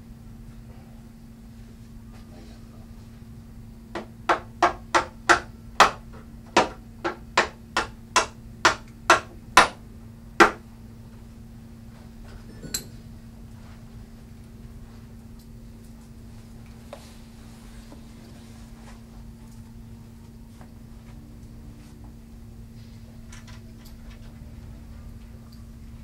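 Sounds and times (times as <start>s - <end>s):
hammer striking wood: 4.0s - 9.8s, 10.4s - 10.6s.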